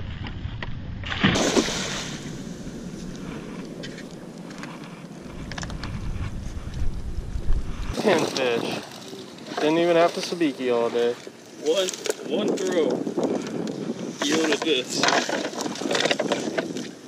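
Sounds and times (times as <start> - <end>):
water splashing and lapping: 1.0 - 6.8, 7.8 - 17.0
wind on microphone: 1.4 - 8.9, 12.0 - 17.0.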